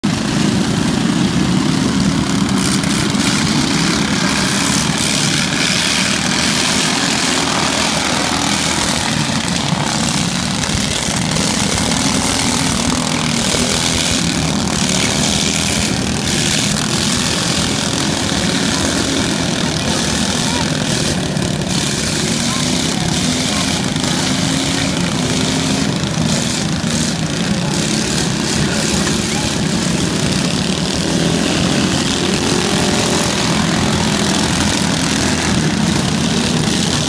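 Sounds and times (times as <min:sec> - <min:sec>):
lawn mower engines running: 0:00.0 - 0:37.0.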